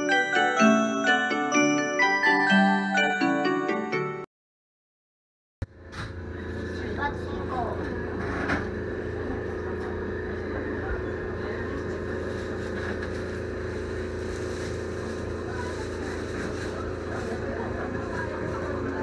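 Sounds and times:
electric train electrical hum: 5.6 - 19.0.

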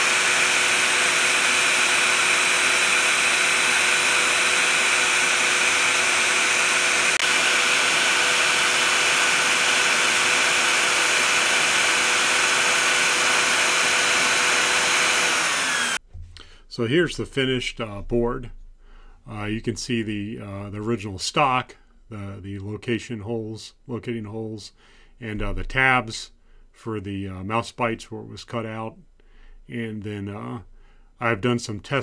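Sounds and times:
vacuum hiss: 0.0 - 16.0.

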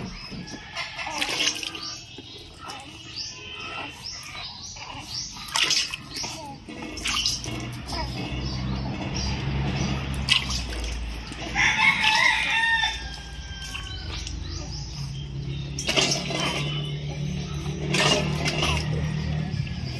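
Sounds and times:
rooster crowing: 11.5 - 14.2.

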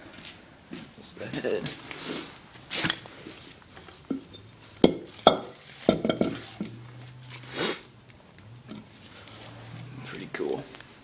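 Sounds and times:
rustle: 1.7 - 7.9, 8.6 - 11.0.

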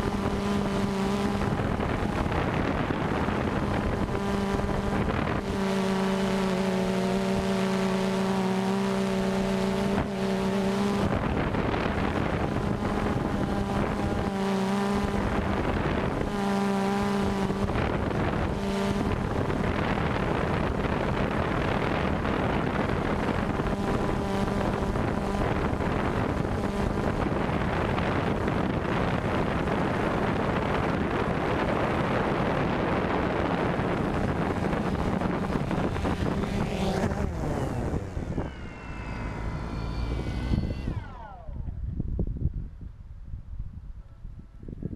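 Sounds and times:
drone motors buzzing hum: 0.0 - 42.3
rushing wind noise: 0.0 - 44.9.

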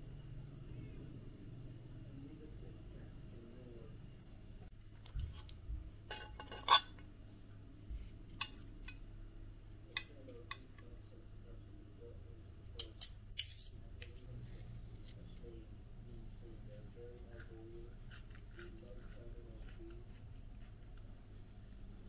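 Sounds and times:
fork scraping ceramic plate: 6.1 - 7.0.

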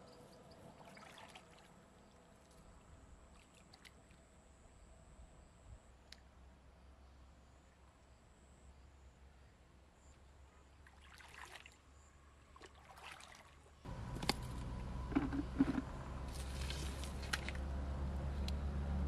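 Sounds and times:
water sloshing and dripping: 0.5 - 4.2, 10.8 - 11.9, 12.5 - 17.7.

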